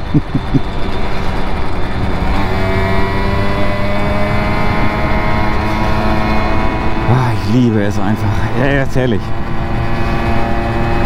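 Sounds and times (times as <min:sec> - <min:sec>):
wind noise: 0:00.0 - 0:01.0
road noise: 0:00.0 - 0:11.0.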